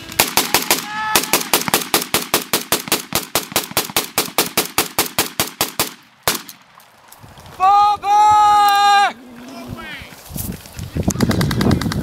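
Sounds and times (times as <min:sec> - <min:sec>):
rifle firing automatic bursts: 0:00.1 - 0:06.5.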